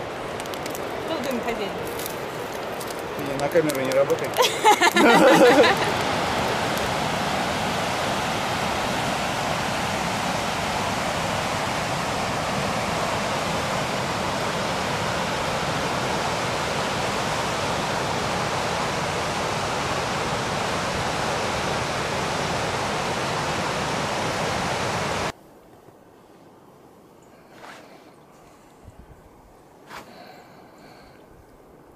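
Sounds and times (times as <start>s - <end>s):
river water rushing over rapids: 0.0s - 25.3s.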